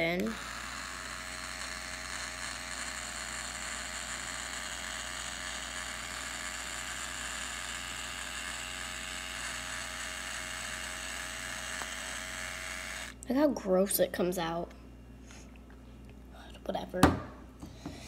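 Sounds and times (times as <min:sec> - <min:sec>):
small electric motor whirring: 0:00.0 - 0:13.2.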